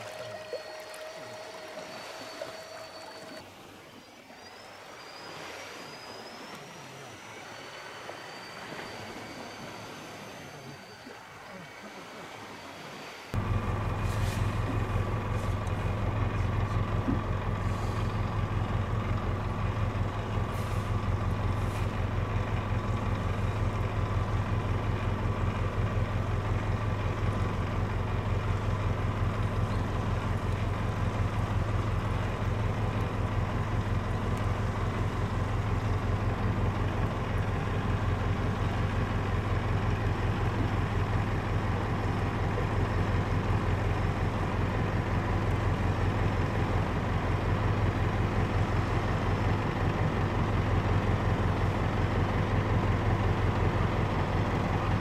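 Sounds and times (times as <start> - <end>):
engine idling: 13.3 - 55.0.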